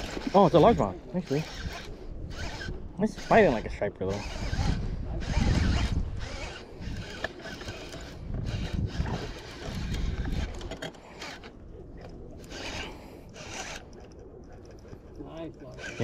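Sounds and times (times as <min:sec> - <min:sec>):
fishing reel bursts: 0:00.0 - 0:10.4, 0:12.4 - 0:13.8, 0:15.7 - 0:16.0.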